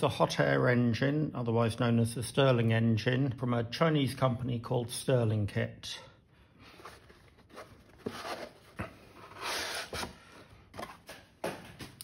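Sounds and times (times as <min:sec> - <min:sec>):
cardboard rubbing on cardboard: 0:06.8 - 0:10.2.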